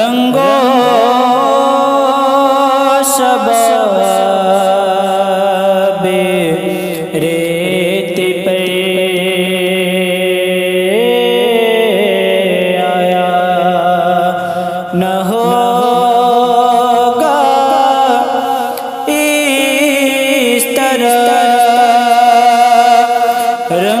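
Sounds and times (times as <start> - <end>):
man singing ornamented notes: 0.0 - 24.0.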